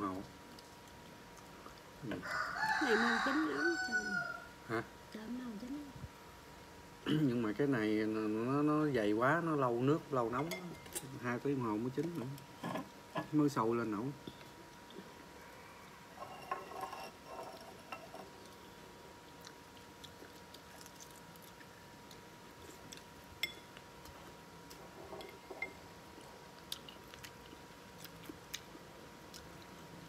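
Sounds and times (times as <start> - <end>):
faint steady hum: 0.0 - 30.0
man chewing food: 0.2 - 2.0, 14.2 - 30.0.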